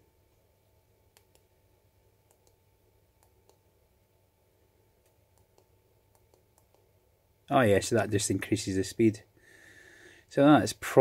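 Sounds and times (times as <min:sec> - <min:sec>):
faint soft clicks: 0:01.1 - 0:01.5, 0:02.2 - 0:02.6, 0:03.2 - 0:03.6, 0:05.0 - 0:06.9.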